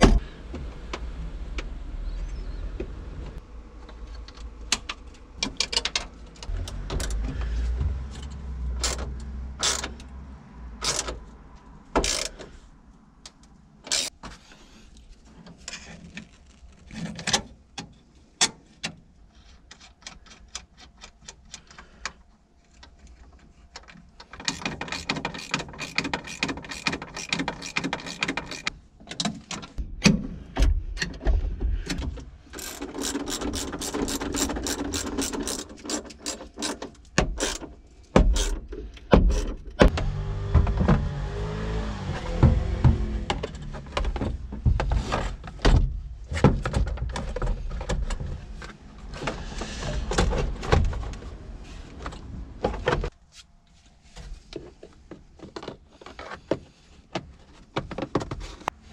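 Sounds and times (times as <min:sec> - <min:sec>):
socket ratchet clicking: 0:24.4 - 0:28.7, 0:32.6 - 0:36.8.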